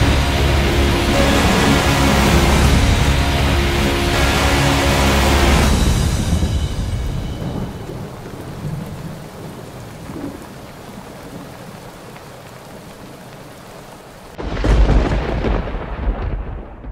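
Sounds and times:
steady rain: 0.0s - 16.9s
loud rumbling thunderclap: 5.4s - 11.6s, 14.4s - 16.9s.

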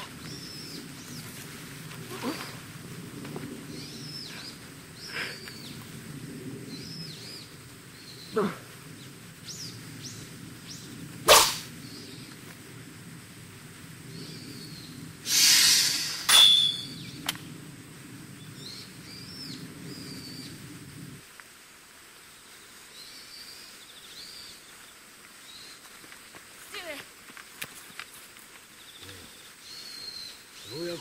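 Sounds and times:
birds chirping faintly: 0.0s - 12.8s, 16.4s - 21.1s, 22.0s - 31.0s
sword swish: 11.3s - 11.7s.

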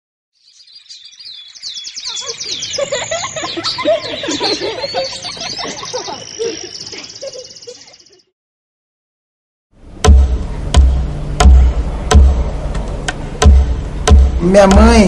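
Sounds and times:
birds chirping and twittering: 0.4s - 8.3s
fast even bird trill: 0.6s - 8.3s.

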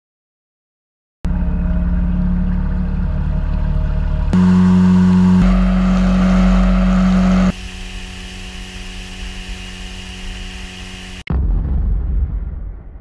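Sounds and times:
outboard motor drone: 1.3s - 11.3s
deep boom: 11.3s - 13.0s.

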